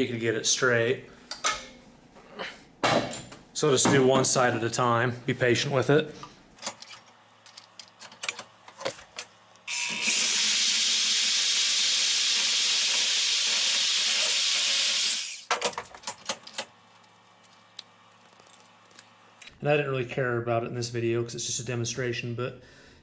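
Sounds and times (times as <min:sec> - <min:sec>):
band saw cutting aluminum: 0:09.7 - 0:15.5.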